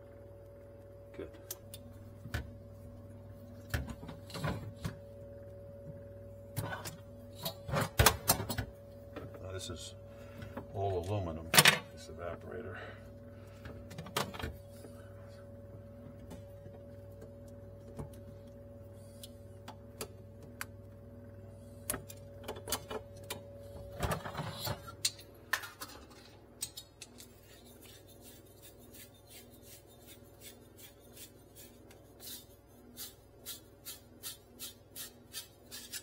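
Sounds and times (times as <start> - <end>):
low hum: 0.0 - 25.3.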